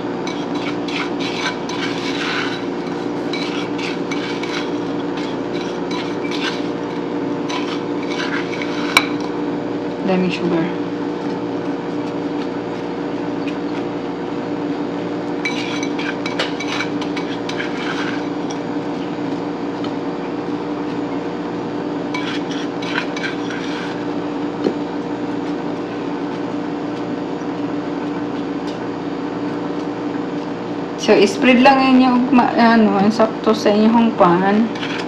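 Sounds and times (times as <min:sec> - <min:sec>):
steady hum: 0:00.0 - 0:35.0
spatula scraping glass bowl: 0:00.2 - 0:09.3, 0:15.4 - 0:18.7, 0:22.1 - 0:24.2, 0:34.6 - 0:35.0.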